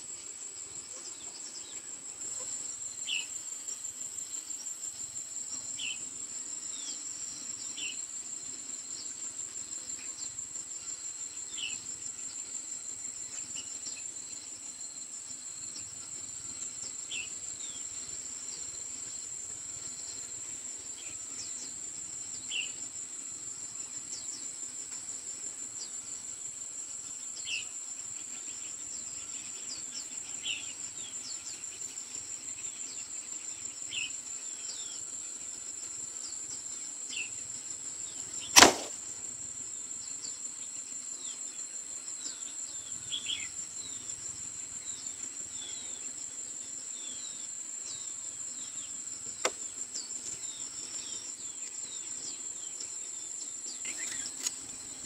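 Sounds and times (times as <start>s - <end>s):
insect chorus: 0.0s - 55.0s
sharp knock: 38.6s - 39.0s.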